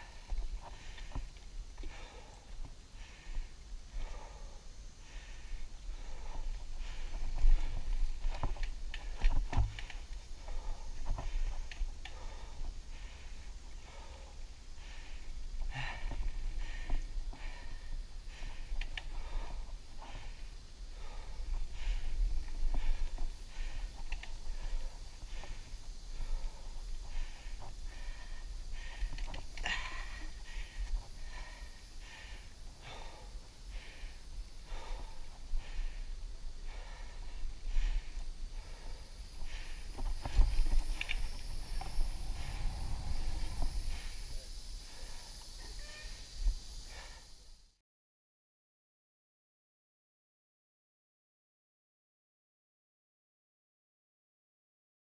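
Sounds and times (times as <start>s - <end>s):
bike ride rumble: 0.0s - 47.6s
heavy breathing: 0.0s - 47.7s
bike knocking and rattling: 6.0s - 13.0s, 21.0s - 31.6s.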